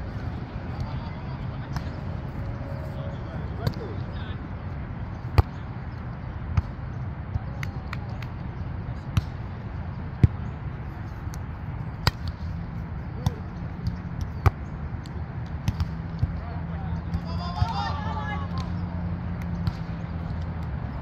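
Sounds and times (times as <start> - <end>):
low outdoor rumble: 0.0 - 21.0
volleyballs slapped by hands: 11.2 - 12.5, 13.1 - 16.4, 18.5 - 21.0.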